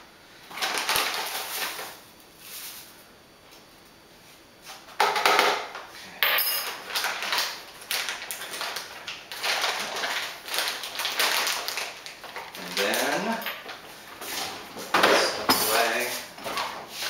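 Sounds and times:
bag rustling and crinkling: 6.6 - 17.0.

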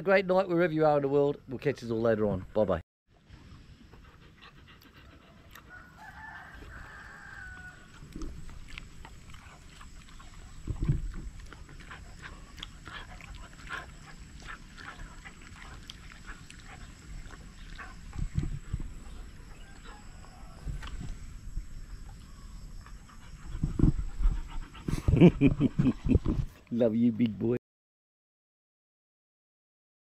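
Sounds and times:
dog licking its lips: 7.9 - 18.5.

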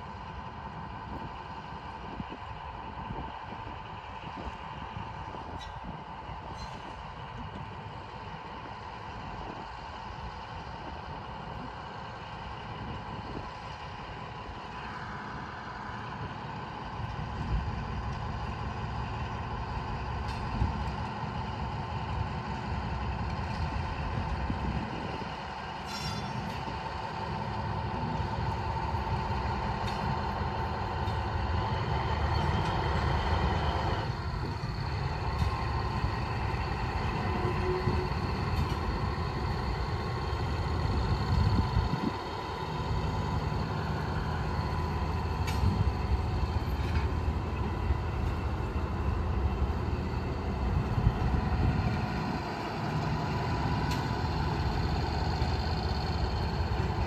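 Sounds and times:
locomotive rumbling with whine: 0.0 - 57.0
sharp metal clanks: 25.8 - 26.6.

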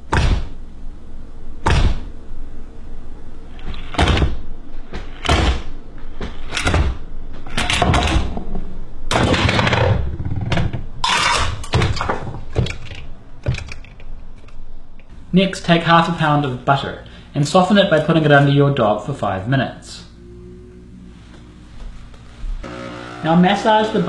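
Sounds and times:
sharp knocks: 0.1 - 0.6, 1.6 - 2.1, 3.9 - 7.0.

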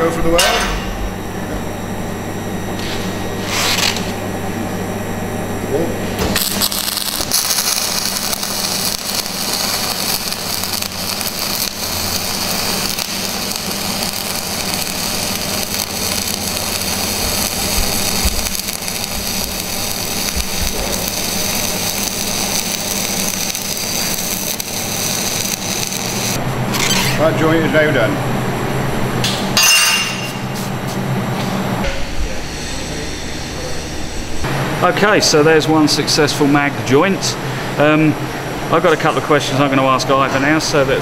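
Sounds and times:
welding arc hissing: 6.0 - 27.3.

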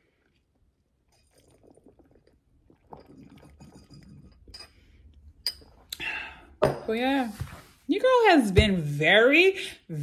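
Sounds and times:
slurping through a straw: 0.0 - 4.2.

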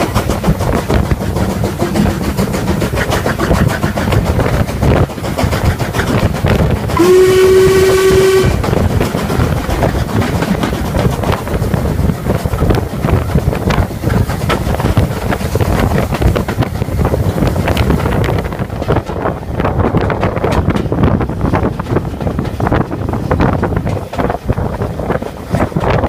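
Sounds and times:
train rumble and clatter: 0.0 - 26.0
steam train whistle: 6.9 - 8.7.

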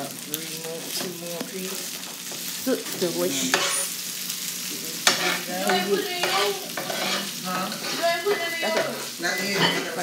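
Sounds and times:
meat sizzling: 0.0 - 10.0
metal spatula scraping griddle: 5.0 - 10.0.

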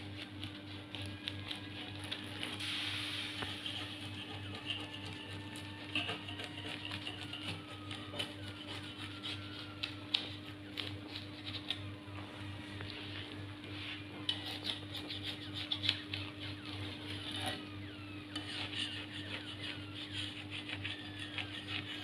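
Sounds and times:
bread crackling on a griddle: 0.0 - 11.8
steady low hum: 0.0 - 22.0
spatula scraping: 2.0 - 9.6, 13.6 - 17.7, 18.3 - 22.0.

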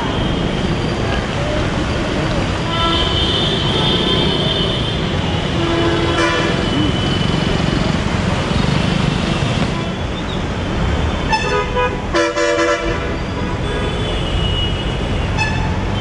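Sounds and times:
street traffic noise: 0.0 - 16.0
vehicle horns honking: 2.7 - 7.4, 11.2 - 16.0.

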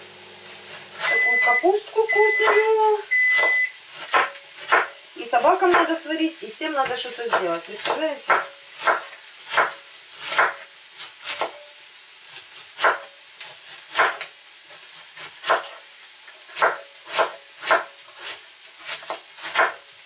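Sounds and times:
vegetables sizzling in pans: 0.0 - 20.0
knife shredding cabbage: 16.5 - 19.9.

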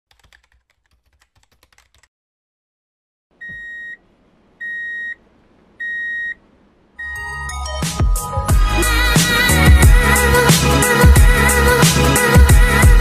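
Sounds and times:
keyboard typing clicks: 0.1 - 2.1
electronic beeps: 3.4 - 4.0, 4.6 - 5.2, 5.8 - 6.4, 7.0 - 7.5.

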